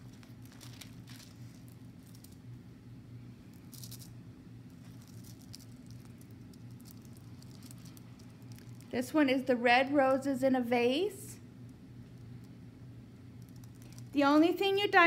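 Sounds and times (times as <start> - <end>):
paper and plastic crinkling: 0.0 - 2.4, 4.8 - 8.9
steady low hum: 0.0 - 15.0.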